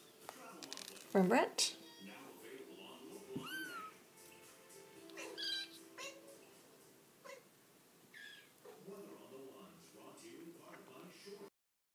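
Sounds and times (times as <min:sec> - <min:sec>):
kitten mewing: 0:03.4 - 0:04.0, 0:05.1 - 0:06.2.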